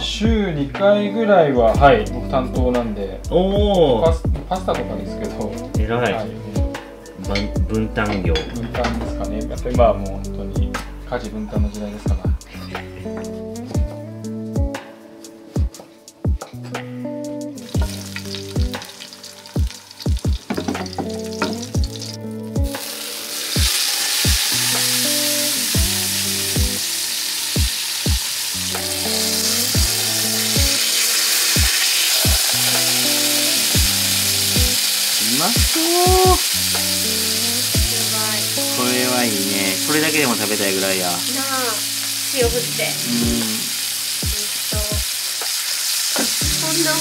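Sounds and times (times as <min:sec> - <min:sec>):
music with plucked notes: 0:00.0 - 0:45.1, 0:46.0 - 0:47.0
fish sizzling in frying pan: 0:17.1 - 0:47.0.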